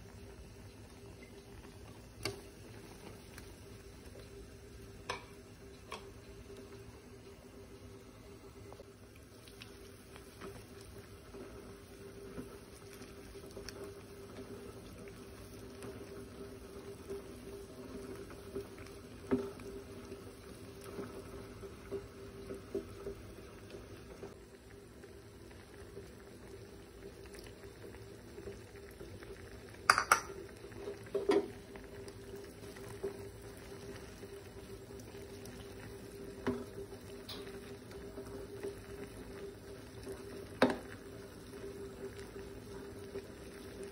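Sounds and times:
broth boiling in a pot: 0.0 - 43.9
spoon knocking against pot: 29.9 - 30.4.

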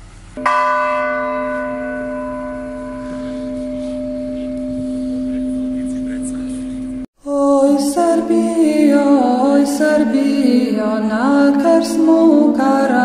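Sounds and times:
church bell ringing: 0.4 - 7.1.

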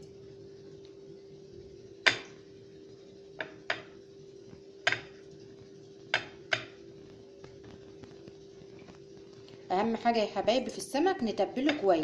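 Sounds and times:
faint steady hum: 0.0 - 12.0
china plate knocking on stone: 4.9 - 5.1.

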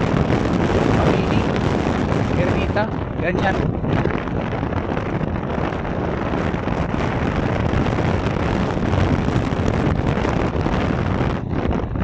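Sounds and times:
vehicle engine and road noise: 0.0 - 12.0
wind rushing over microphone: 0.0 - 12.0.

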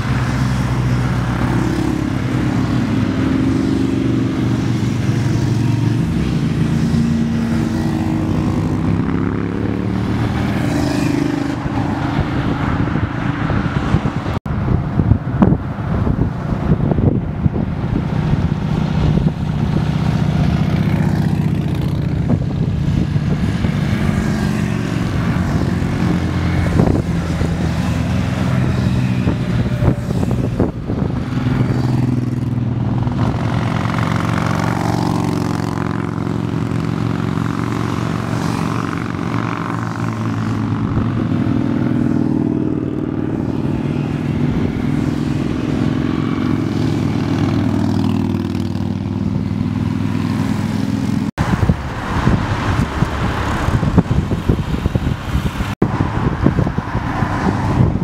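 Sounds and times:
motorcycles riding past: 0.0 - 14.4, 15.0 - 58.0.

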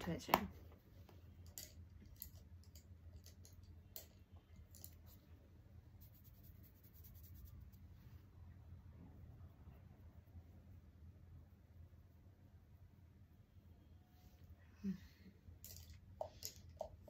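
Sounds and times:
room hum: 0.0 - 17.0.

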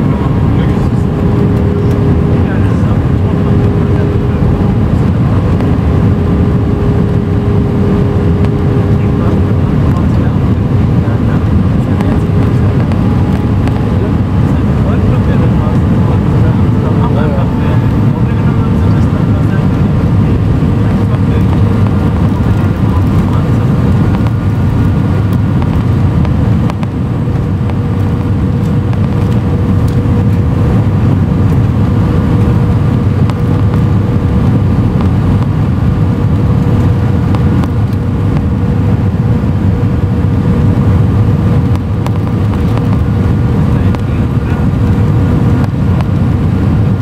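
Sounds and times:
aircraft cabin engine rumble: 0.0 - 47.0
steady tones: 0.0 - 47.0.

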